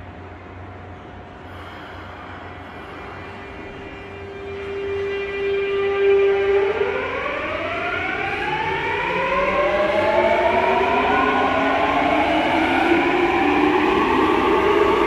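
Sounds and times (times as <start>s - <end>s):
train inverter whine: 0.0s - 15.0s.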